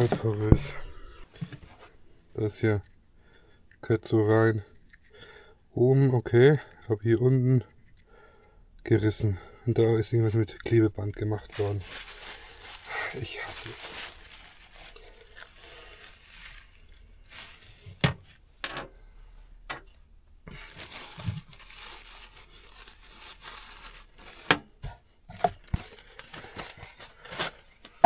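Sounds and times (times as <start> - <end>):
hands rustling and scraping hose: 0.0 - 3.0, 10.2 - 18.7, 19.7 - 28.0.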